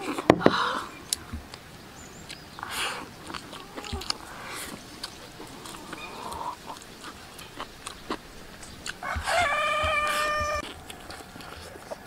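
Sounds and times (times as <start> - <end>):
person chewing: 2.2 - 12.0
rooster crowing: 9.0 - 10.7.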